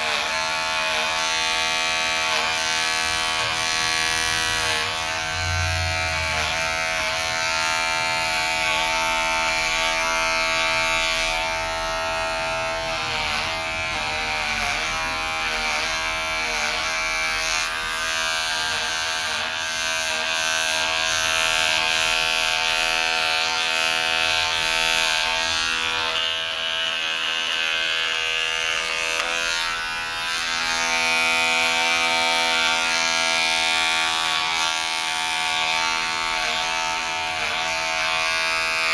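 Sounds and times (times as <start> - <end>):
electric hair clipper buzzing: 0.0 - 38.9.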